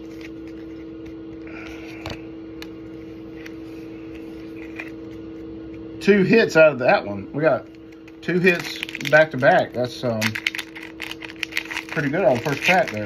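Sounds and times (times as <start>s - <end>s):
steady low hum: 0.0s - 13.0s
cards rustling: 7.6s - 13.0s.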